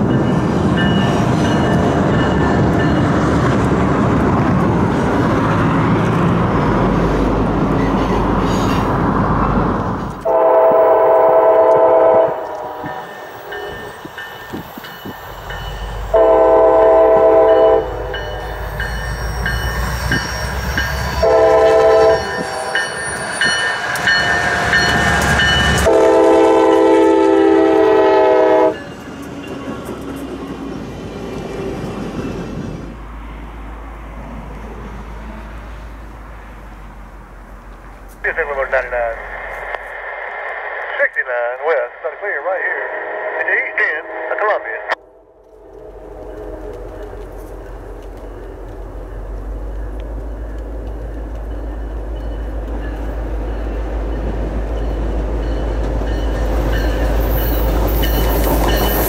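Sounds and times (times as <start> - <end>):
train rumbling along: 0.0 - 59.0
locomotive horn blasts: 10.2 - 13.1, 16.1 - 18.1, 21.2 - 22.8, 25.8 - 28.8.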